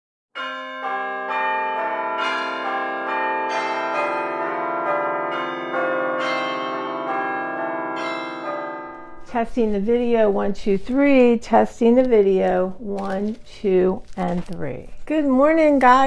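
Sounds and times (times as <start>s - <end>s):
bells ringing pitched notes: 0.4s - 9.4s.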